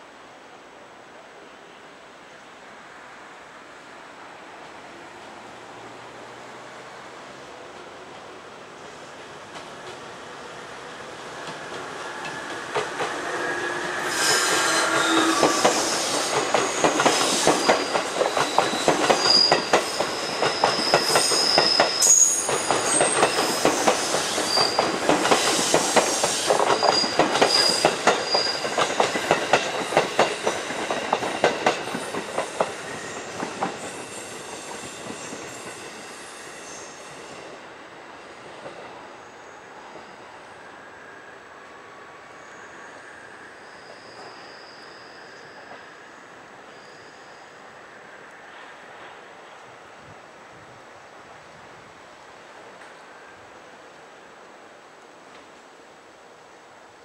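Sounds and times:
train wheels clattering: 11.4 - 36.0
high wheel squeals: 11.9 - 37.6, 42.4 - 48.0.

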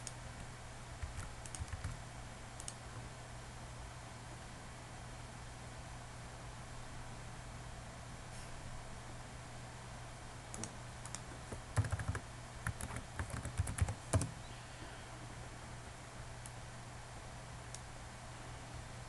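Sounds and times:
low steady hum: 0.0 - 19.0
computer keyboard typing: 1.0 - 2.0, 10.6 - 14.4.

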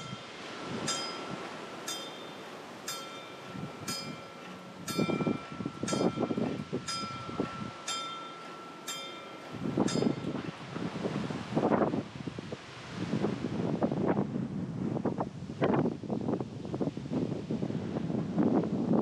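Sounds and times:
level crossing warning bell ringing: 0.0 - 10.6
wind buffeting microphone: 0.0 - 19.0.

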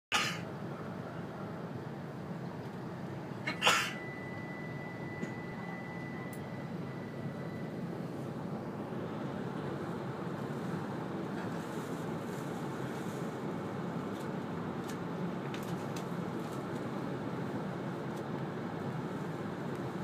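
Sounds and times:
train cabin noise: 0.1 - 20.0
high steady beep: 3.9 - 7.8.

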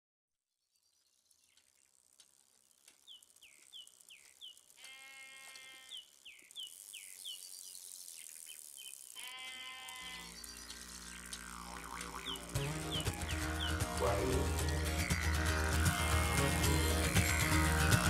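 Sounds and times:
sheep bleating: 4.8 - 6.1, 9.2 - 10.4, 12.4 - 18.0
low steady drone: 10.4 - 18.0
music: 12.2 - 18.0.

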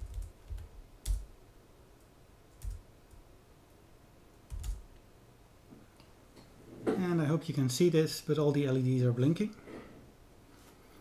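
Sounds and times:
computer keyboard keystrokes: 0.0 - 1.3, 2.6 - 3.2, 4.5 - 4.8.

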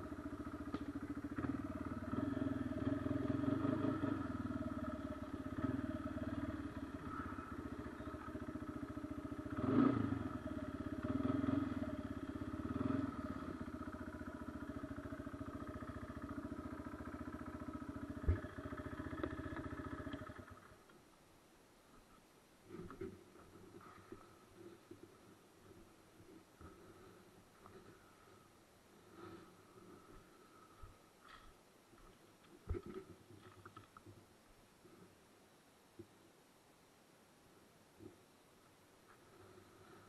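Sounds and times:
atv engine revving: 0.0 - 20.8.

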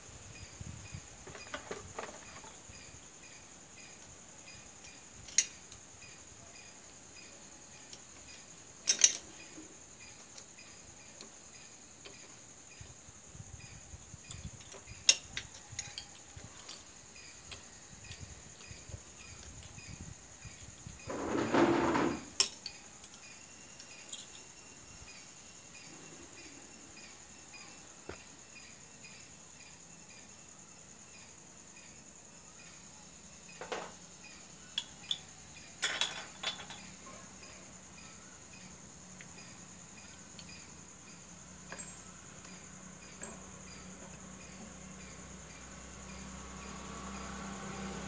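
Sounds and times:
metal tools clicking: 4.8 - 5.8, 8.8 - 9.4
metal tool scraping: 21.1 - 22.5.

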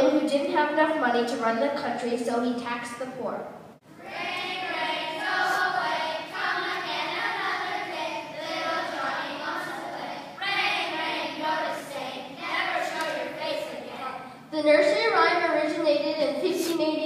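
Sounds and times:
children singing: 4.0 - 14.3.

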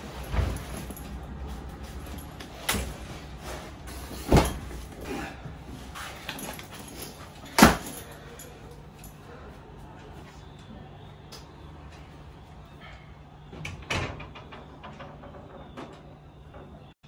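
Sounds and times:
luggage knocking and clattering: 0.0 - 5.1, 5.8 - 8.2.

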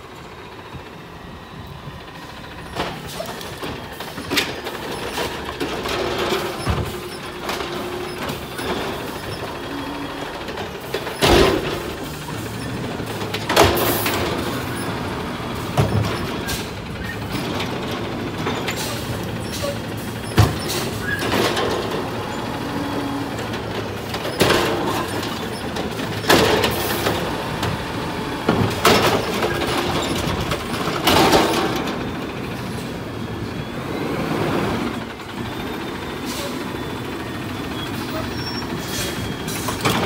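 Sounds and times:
garbage truck engine hum: 0.0 - 40.0
hydraulic arm knocks and clanks: 20.2 - 22.0.

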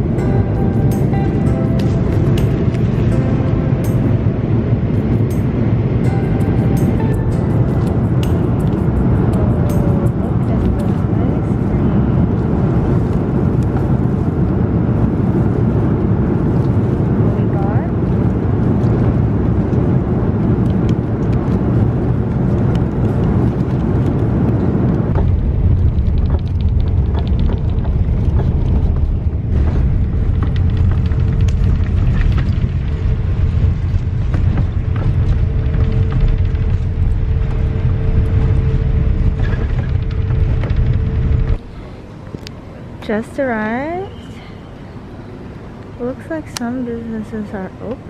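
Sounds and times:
jet engine and airflow rumble: 0.0 - 48.0
steady hum-like tone: 0.0 - 48.0.

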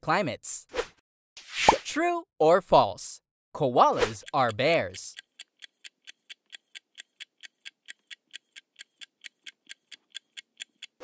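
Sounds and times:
clock-like timer ticks: 3.8 - 11.0.

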